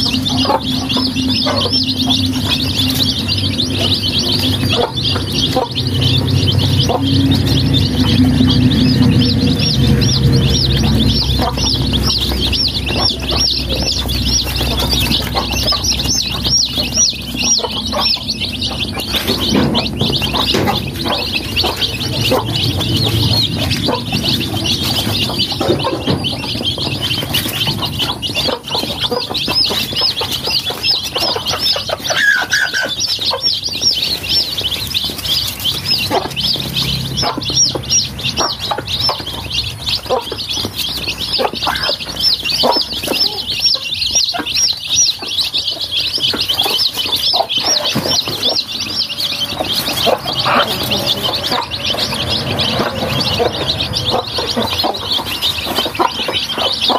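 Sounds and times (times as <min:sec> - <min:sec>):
chicks peeping: 0:00.0 - 0:56.9.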